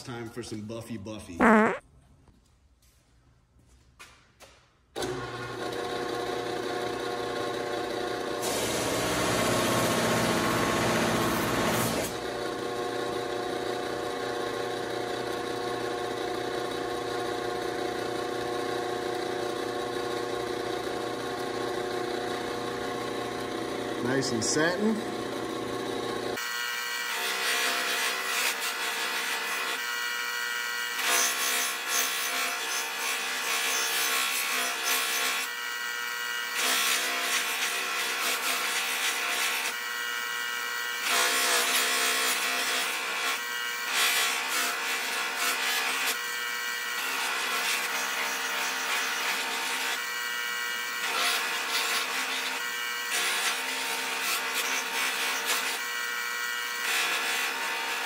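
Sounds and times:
buffing machine motor hum: 14.9s - 26.4s.

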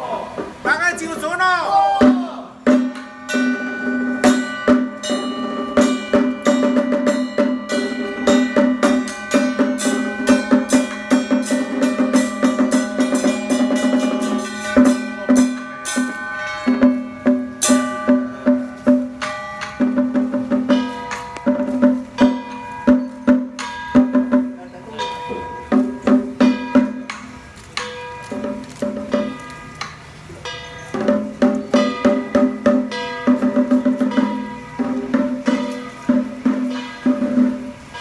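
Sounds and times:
fast drum strikes: 1.8s - 24.7s, 25.4s - 29.4s, 30.9s - 37.8s
held tone with melody: 2.0s - 38.0s
wood block strikes: 2.0s - 38.0s
gong strikes: 2.7s - 38.0s.

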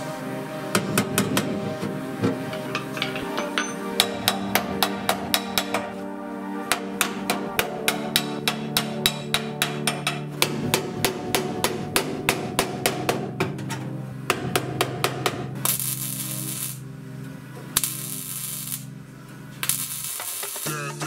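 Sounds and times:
background music: 0.0s - 21.0s
hammer driving chisel into sheet metal: 2.3s - 5.9s
welding crackle: 15.6s - 16.8s, 17.8s - 19.0s, 19.6s - 20.9s.

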